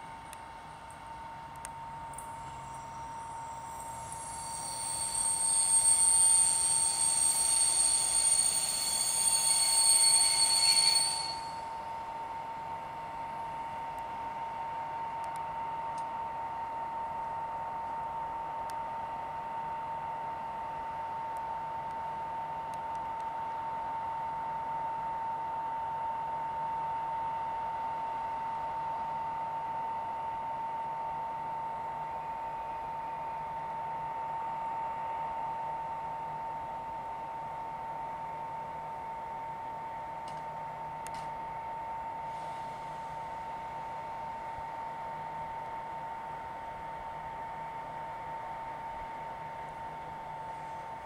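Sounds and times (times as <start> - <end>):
electric train whine: 0.0 - 51.0
train brake squeal: 2.1 - 12.3, 41.6 - 45.4.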